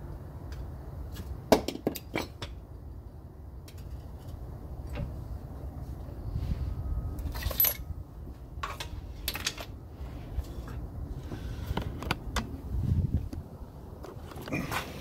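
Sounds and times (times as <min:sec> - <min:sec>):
metal clinks and knocks: 0:07.2 - 0:07.9.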